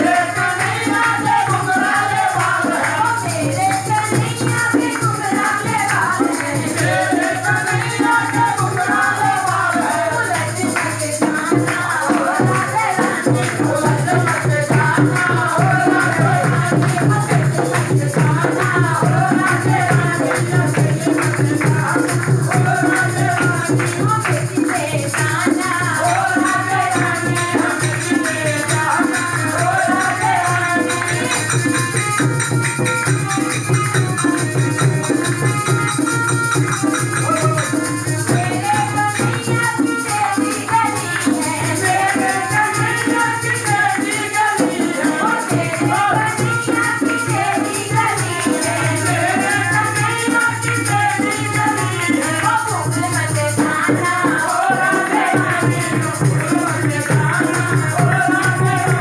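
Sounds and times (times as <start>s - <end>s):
group singing devotional song: 0.0s - 59.0s
harmonium: 0.0s - 59.0s
jingling percussion: 0.0s - 59.0s
hand-clapping: 10.7s - 15.4s, 16.0s - 18.8s, 19.4s - 43.8s.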